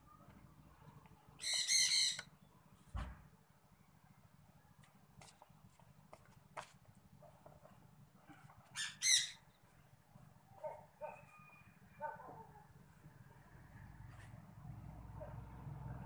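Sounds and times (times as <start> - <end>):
bird calls: 1.3 - 2.5, 8.6 - 9.9.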